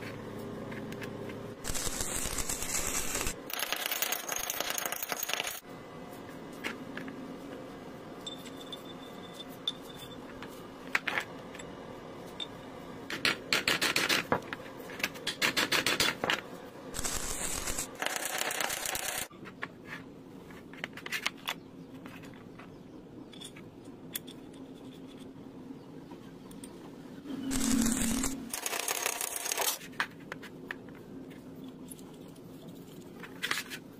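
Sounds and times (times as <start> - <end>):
rough rubbing noise: 27.2 - 28.6
rapid metal scraping: 27.3 - 29.8.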